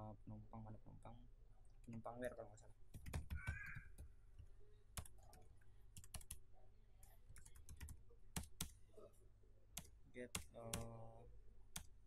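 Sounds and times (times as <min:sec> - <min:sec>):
keyboard typing: 0:02.9 - 0:06.4, 0:07.0 - 0:08.8, 0:09.8 - 0:11.0, 0:11.7 - 0:12.0.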